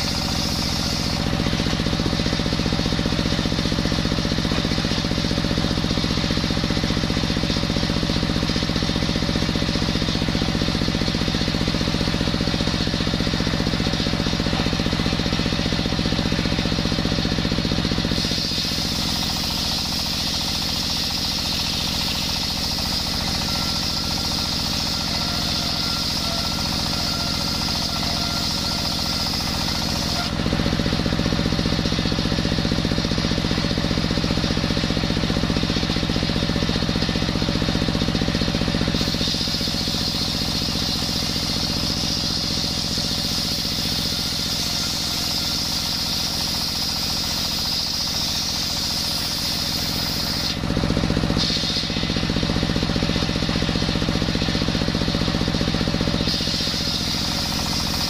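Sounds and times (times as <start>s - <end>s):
diesel engine chugging: 0.0s - 58.0s
saw blade whining through wood: 0.0s - 58.0s.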